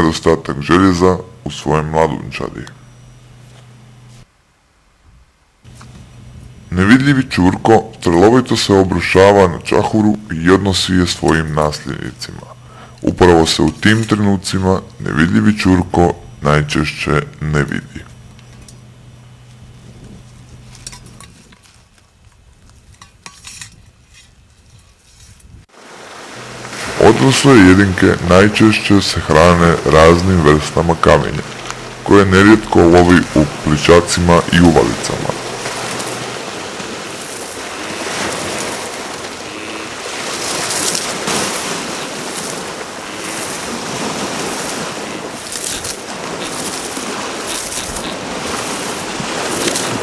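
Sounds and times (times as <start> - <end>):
low hum: 0.0 - 4.9, 5.6 - 21.8, 26.2 - 50.0
metal cylinder scraping and clinking: 20.6 - 21.6, 23.0 - 25.4
waves washing onto pebble beach: 25.7 - 50.0
rustling: 34.9 - 50.0.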